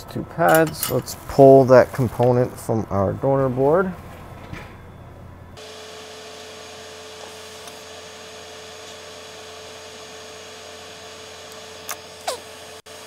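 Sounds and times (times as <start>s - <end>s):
hot air station hiss: 5.6s - 13.0s.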